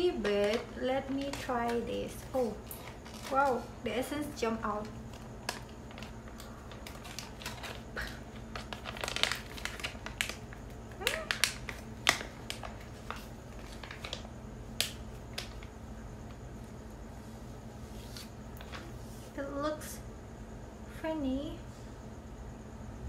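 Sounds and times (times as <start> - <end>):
sheet mask packet crinkling: 0.0 - 3.7, 4.6 - 16.4.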